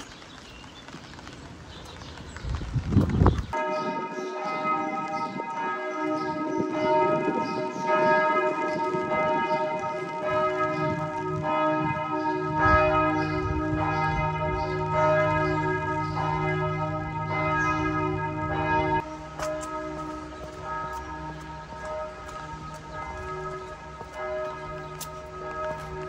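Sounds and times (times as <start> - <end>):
church bells pealing: 3.5 - 26.0
deep bell hum: 10.4 - 26.0.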